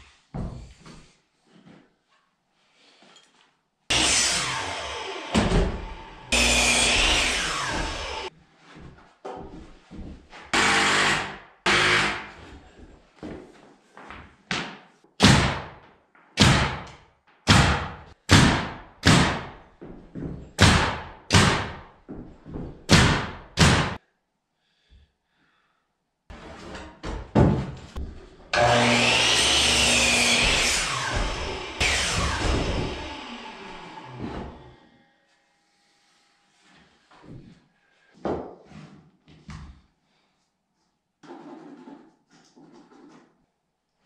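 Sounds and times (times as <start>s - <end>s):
miter saw running: 3.9s - 8.3s, 28.6s - 34.2s
nail gun shots: 15.2s - 15.8s, 16.4s - 19.6s, 20.6s - 21.8s, 22.9s - 24.0s.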